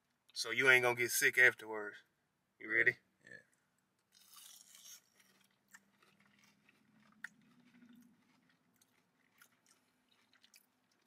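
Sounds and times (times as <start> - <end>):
biting and chewing: 4.0 - 11.0.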